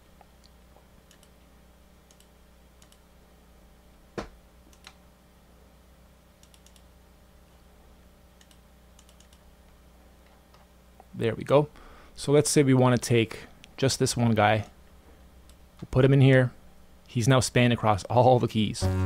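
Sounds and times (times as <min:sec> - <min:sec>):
computer mouse clicks: 0:00.4 - 0:01.4, 0:02.1 - 0:03.0, 0:04.7 - 0:05.0, 0:06.4 - 0:06.9, 0:08.4 - 0:09.4.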